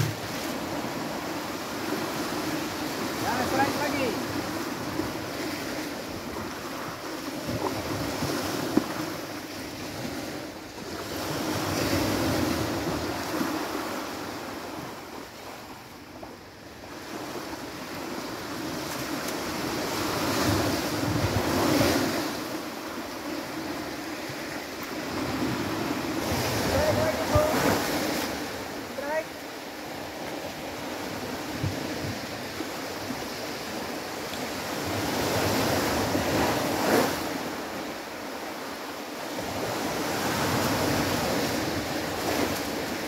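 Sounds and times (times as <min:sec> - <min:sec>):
surf breaking on sandy beach: 0:00.0 - 0:10.4, 0:17.2 - 0:43.0.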